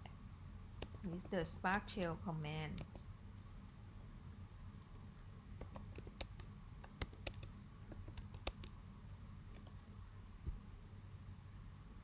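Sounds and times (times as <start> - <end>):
computer keyboard typing: 0.8 - 1.9, 2.7 - 3.0, 5.6 - 8.8.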